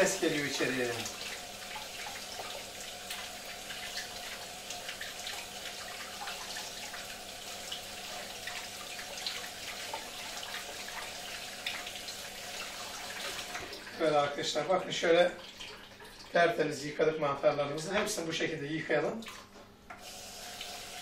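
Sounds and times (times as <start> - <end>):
hands rinsing mushrooms: 0.0 - 14.2.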